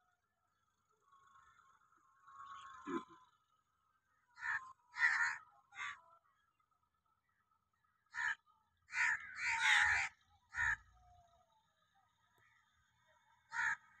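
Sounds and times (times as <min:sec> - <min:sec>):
crow cawing: 0:01.1 - 0:03.3, 0:04.3 - 0:06.2, 0:08.0 - 0:11.2, 0:13.4 - 0:14.0.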